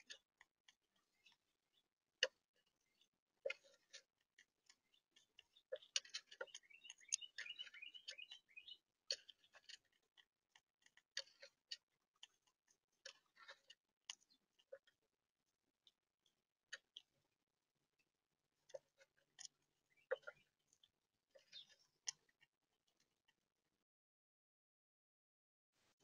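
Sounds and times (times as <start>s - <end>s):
squirrel feeding clicks: 0.0s - 14.9s
bird chirping: 0.9s - 3.9s, 4.6s - 10.0s, 19.8s - 22.3s.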